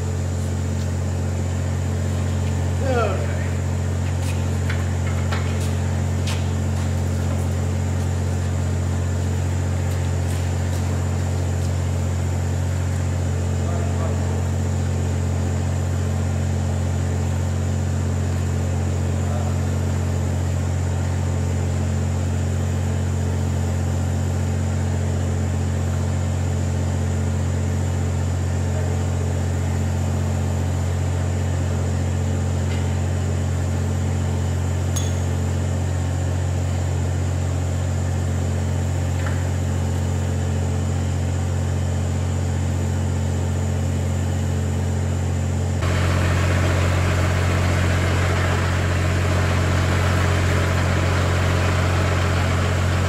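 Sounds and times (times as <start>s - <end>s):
engine idling: 27.4s - 53.0s
light metallic clink: 35.0s - 35.4s.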